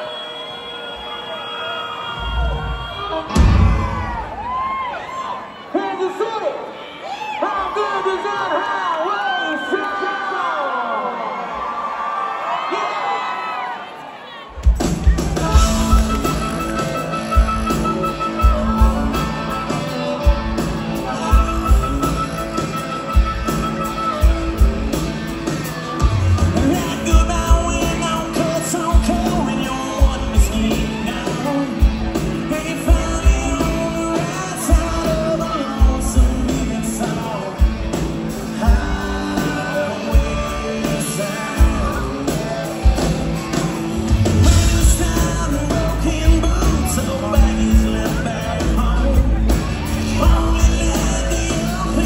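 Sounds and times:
drums keeping a steady beat: 2.5s - 4.8s, 14.5s - 52.0s
bass guitar: 14.6s - 52.0s
electric guitars: 14.6s - 52.0s
man singing lead: 15.1s - 24.7s, 26.1s - 52.0s.

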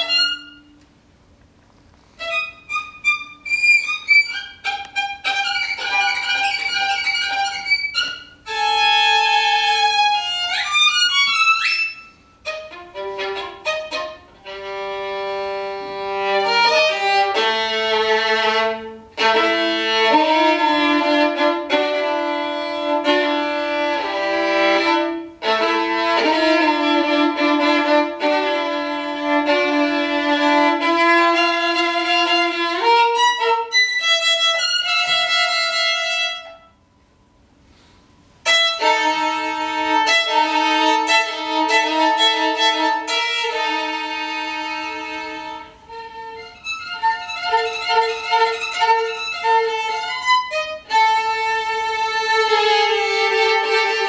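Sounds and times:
solo violin playing: 0.0s - 0.9s, 2.1s - 36.8s, 38.4s - 54.0s.

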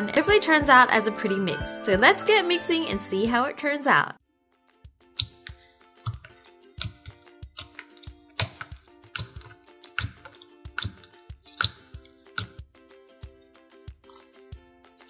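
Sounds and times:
quiet background music: 0.0s - 15.0s
slime clicking and squishing: 5.2s - 12.6s.

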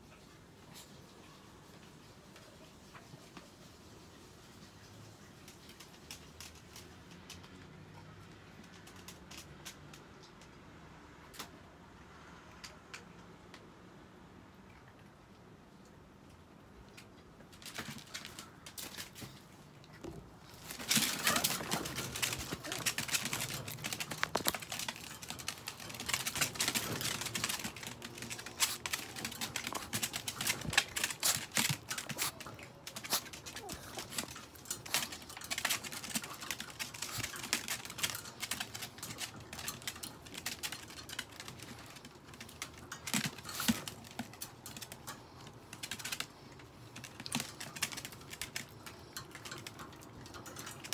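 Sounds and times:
dog claws scratching wire pen: 20.4s - 50.9s.

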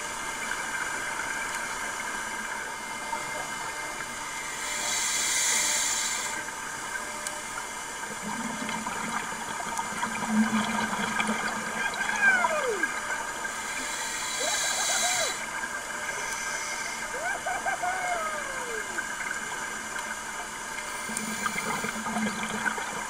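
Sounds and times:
regulator inhalation hiss: 4.5s - 6.6s, 13.5s - 15.5s, 16.1s - 17.1s.

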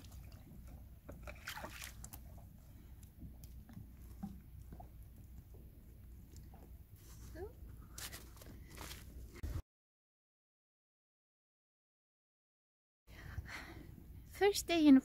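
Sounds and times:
ice and snow crunching: 8.0s - 9.1s.

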